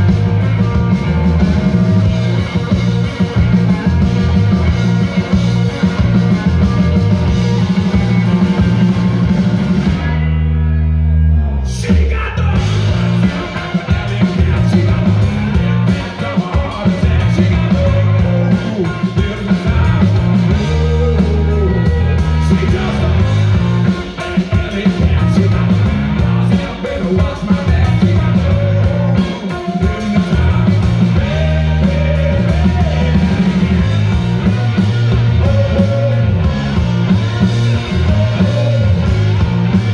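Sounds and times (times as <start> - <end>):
drum kit: 0.0 - 10.7, 11.7 - 39.9
bass guitar: 0.0 - 39.9
electric guitar: 0.0 - 39.9
man singing: 11.6 - 36.8, 37.7 - 39.4.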